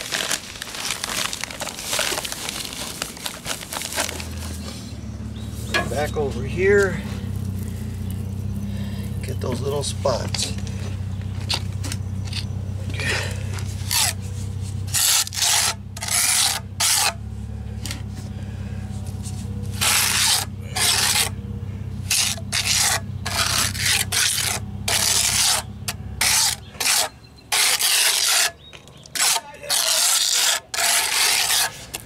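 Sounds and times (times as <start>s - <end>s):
hand trowel scraping cement: 12.2s - 17.2s, 18.9s - 21.4s, 22.1s - 32.0s.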